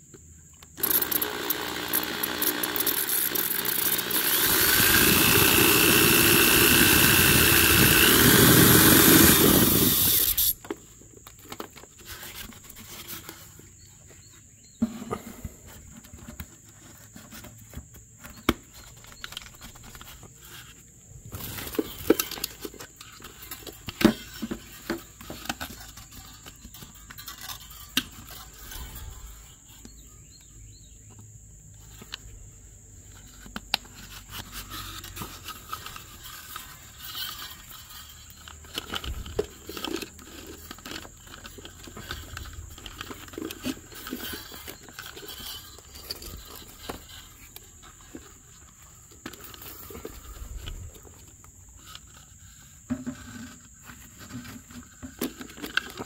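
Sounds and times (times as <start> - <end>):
power tool whining: 0.8 - 10.7
handling knocks and scrapes: 8.5 - 31.1, 31.8 - 56.0.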